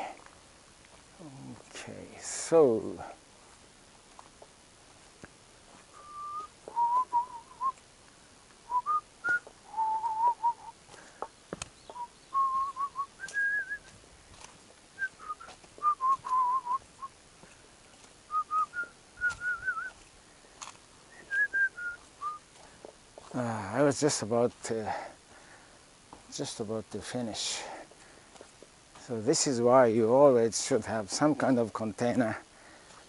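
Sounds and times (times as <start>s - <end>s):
person whistling a tune: 6.0s - 7.8s, 8.7s - 10.7s, 12.0s - 13.9s, 15.0s - 16.8s, 18.3s - 19.9s, 21.2s - 22.4s.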